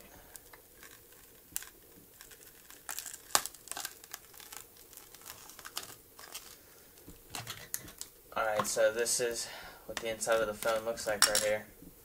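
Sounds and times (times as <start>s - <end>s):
glass panel peeling with crackles: 0.4s - 8.8s, 10.0s - 11.5s.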